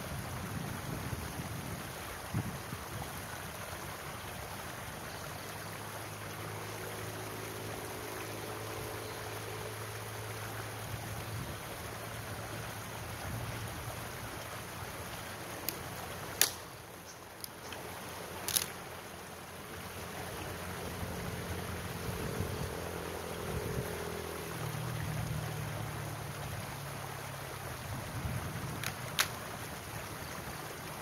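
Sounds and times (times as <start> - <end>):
stream running over rocks: 0.0 - 31.0
dry firewood cracking: 15.6 - 16.8, 18.4 - 18.8, 28.8 - 29.4.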